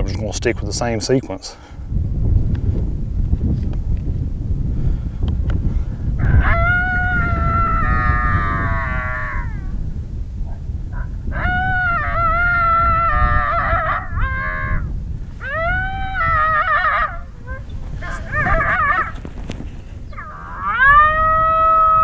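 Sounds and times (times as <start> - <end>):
recorded coyote howls and yelps: 6.2 - 9.8, 10.5 - 19.2, 20.1 - 22.0.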